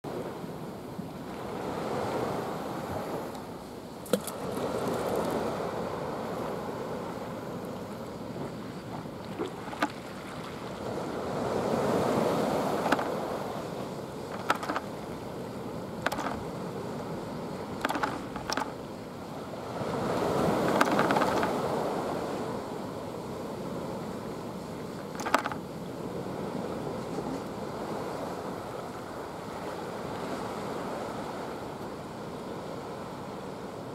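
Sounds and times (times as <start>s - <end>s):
sea waves washing against wall: 8.5s - 23.1s, 25.1s - 28.6s.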